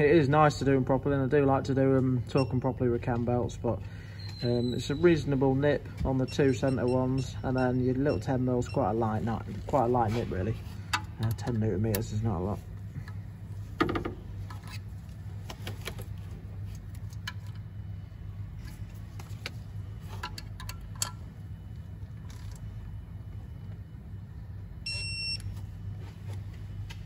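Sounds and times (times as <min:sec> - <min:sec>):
steady low hum: 0:00.0 - 0:27.0
torque wrench beep: 0:04.1 - 0:05.1, 0:06.2 - 0:09.0, 0:24.9 - 0:25.5.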